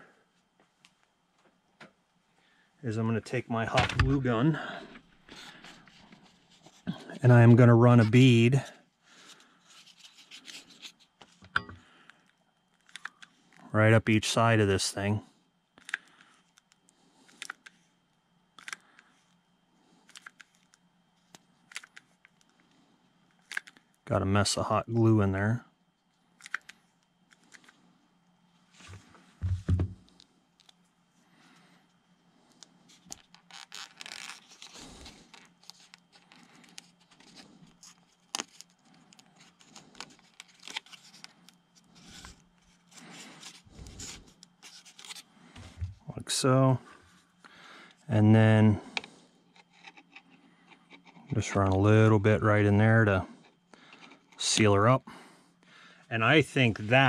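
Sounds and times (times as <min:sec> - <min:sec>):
faint low hum: 0:00.0 - 0:57.0
scraping and crinkling handling noises: 0:02.9 - 0:15.1, 0:28.6 - 0:48.2.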